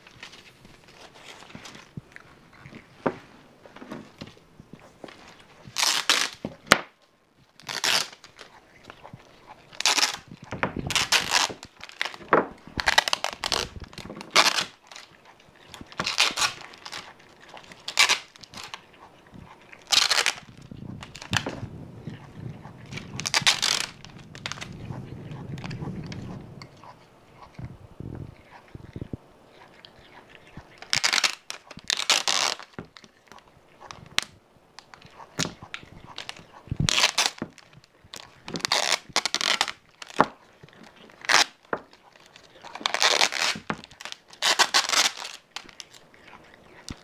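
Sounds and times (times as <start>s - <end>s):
packing tape ripping and crinkling: 5.6s - 6.9s, 7.6s - 8.5s, 9.7s - 18.8s, 19.8s - 21.6s, 22.9s - 24.8s, 30.8s - 33.1s, 33.9s - 46.0s.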